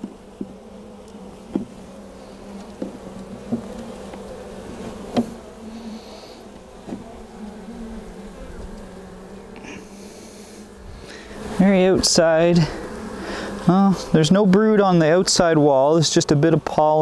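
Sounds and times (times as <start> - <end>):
hive tool clicking and knocking: 0.0 - 1.8, 2.6 - 4.3, 6.8 - 7.1
honey bees humming: 0.0 - 17.0.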